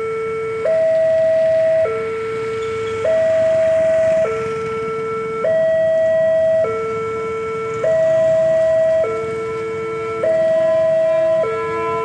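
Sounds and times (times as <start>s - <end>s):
level crossing two-tone alarm: 0.0s - 12.0s.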